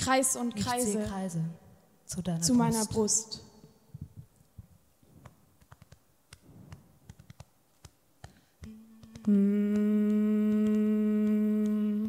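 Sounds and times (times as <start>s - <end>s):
faint clicks and stage noises: 3.6s - 12.0s
women humming held note: 8.6s - 12.0s.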